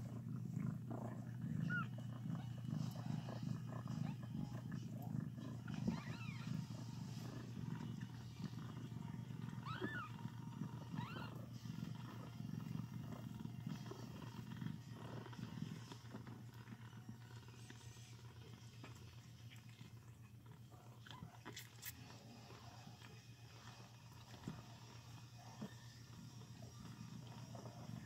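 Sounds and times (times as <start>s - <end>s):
cat purring: 0.0s - 28.0s
kittens mewing: 9.6s - 10.2s, 10.9s - 11.4s.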